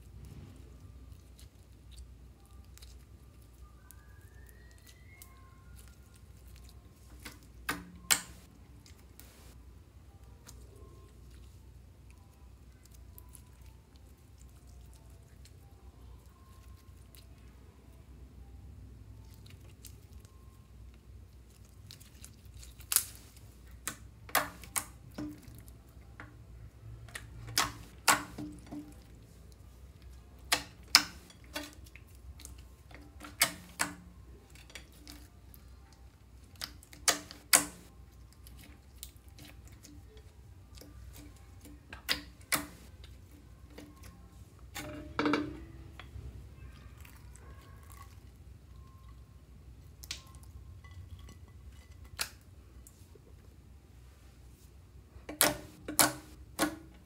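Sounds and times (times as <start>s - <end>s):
slime squish: 0.0s - 9.6s, 19.2s - 45.0s
slime clicking and popping: 6.5s - 8.4s.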